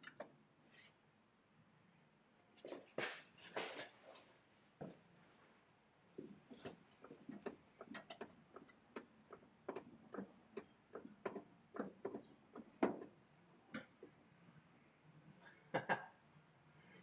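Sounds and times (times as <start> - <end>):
jack clicks and knocks: 6.2 - 14.0.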